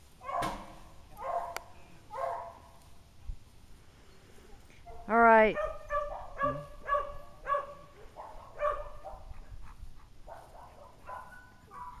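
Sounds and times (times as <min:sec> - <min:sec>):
dog barking and yipping: 0:00.2 - 0:00.6, 0:01.2 - 0:02.6, 0:04.9 - 0:09.6, 0:10.2 - 0:12.0.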